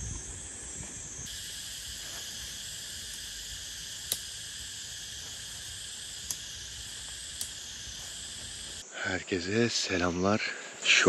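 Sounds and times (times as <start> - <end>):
insects buzzing: 0.0 - 11.0
sharp click: 4.0 - 4.3, 6.2 - 6.5, 7.3 - 7.6.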